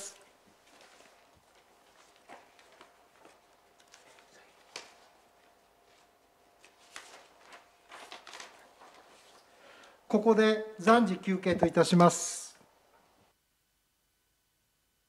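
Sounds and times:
paper rustling: 0:00.5 - 0:09.5.

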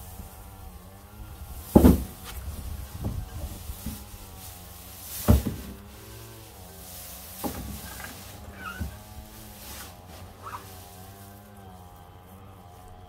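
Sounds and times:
rustle of dry stalks: 0:00.0 - 0:13.0
thumps in plastic wheeled bin: 0:01.6 - 0:04.2, 0:05.0 - 0:06.0, 0:07.2 - 0:09.1.

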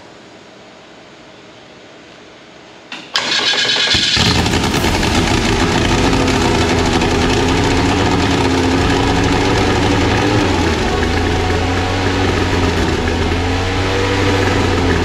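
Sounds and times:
engine starter cranking: 0:03.1 - 0:11.6
aircraft engine running: 0:03.2 - 0:15.0.

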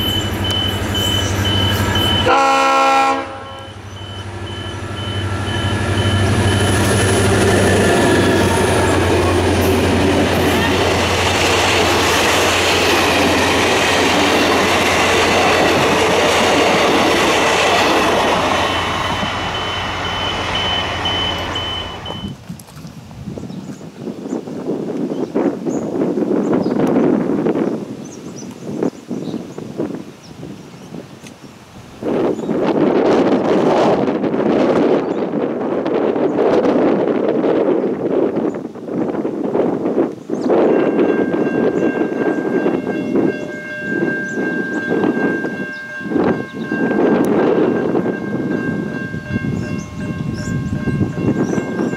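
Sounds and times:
train engines humming: 0:00.0 - 0:22.4, 0:31.6 - 0:51.9
wheel and rail noise: 0:00.0 - 0:22.7
train horn: 0:00.4 - 0:11.3.

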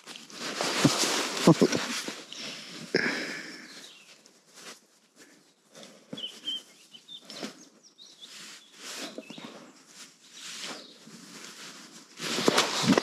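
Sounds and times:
hand rubbing dog's fur: 0:00.0 - 0:02.8
fabric rustling: 0:00.0 - 0:02.9, 0:03.8 - 0:13.0
faint high chirps: 0:06.1 - 0:09.6.

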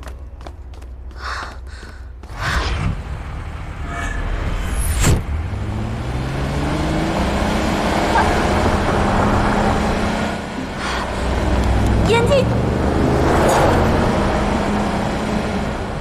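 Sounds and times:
car engine accelerating: 0:02.2 - 0:16.0.

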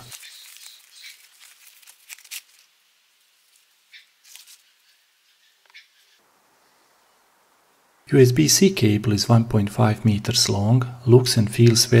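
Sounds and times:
cloth pouch rustling: 0:00.0 - 0:02.7.

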